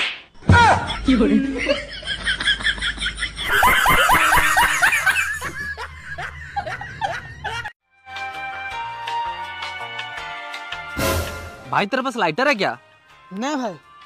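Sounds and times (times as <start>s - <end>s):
person laughing: 0.6s - 7.7s
music: 7.8s - 14.0s.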